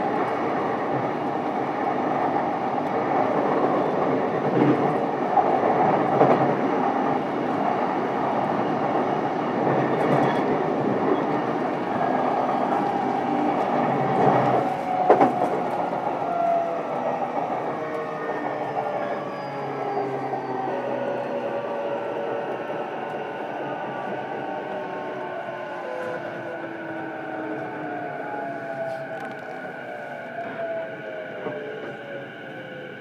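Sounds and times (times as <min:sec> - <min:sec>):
train rolling noise: 0:00.0 - 0:33.0.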